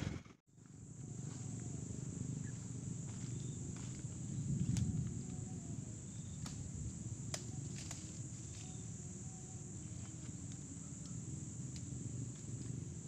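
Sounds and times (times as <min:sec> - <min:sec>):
low rumble: 0:00.0 - 0:08.0
insects buzzing: 0:00.2 - 0:13.0.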